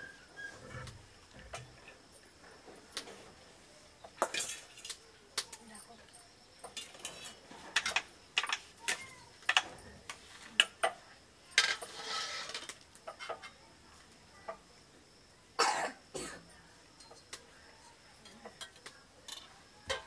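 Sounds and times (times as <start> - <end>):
spoons clinking against pots: 4.2 - 5.0.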